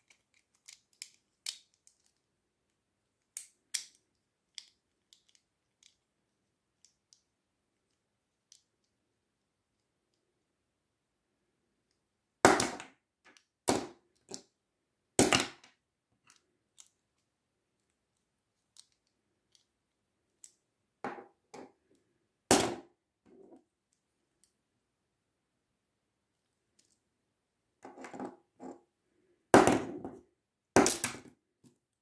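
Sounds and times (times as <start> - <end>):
plastic toy clicks and snaps: 0.0 - 2.2, 3.3 - 6.0.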